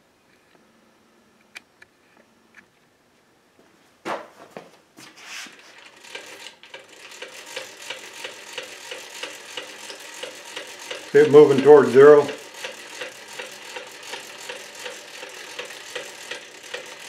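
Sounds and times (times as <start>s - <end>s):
rapid mechanical clicks of crank: 5.5s - 17.0s.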